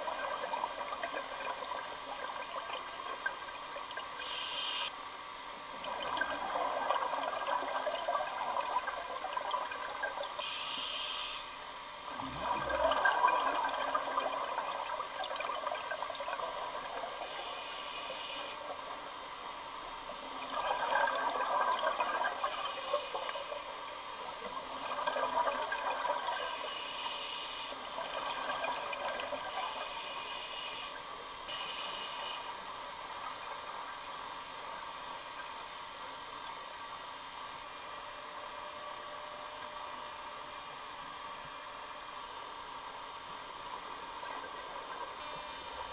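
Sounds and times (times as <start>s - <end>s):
exhaled bubbles underwater: 0.0s - 4.2s, 5.7s - 10.4s, 12.0s - 17.7s, 19.9s - 26.8s, 27.8s - 30.2s
steady background hiss: 0.0s - 45.9s
regulator inhalation hiss: 4.2s - 4.9s, 10.4s - 11.6s, 17.4s - 18.6s, 26.4s - 27.8s, 29.6s - 32.6s.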